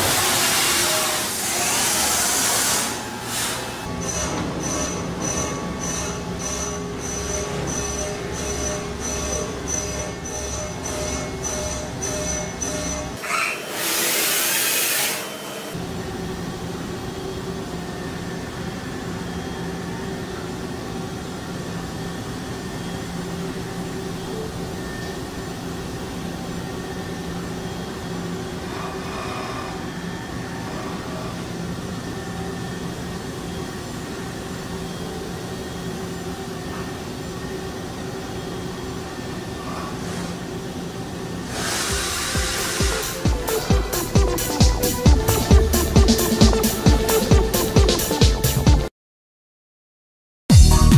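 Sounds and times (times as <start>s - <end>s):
machine humming with high whine: 0.0s - 48.7s
loud hiss: 41.5s - 43.3s.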